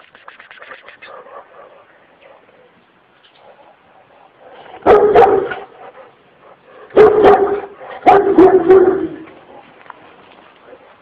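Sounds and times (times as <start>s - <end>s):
dog barking aggressively: 3.4s - 9.3s.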